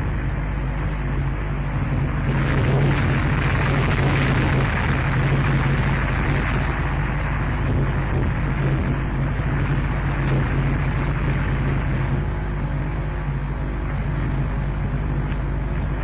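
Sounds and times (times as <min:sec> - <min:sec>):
low hum: 0:00.0 - 0:16.0
steady rumbling: 0:00.0 - 0:16.0.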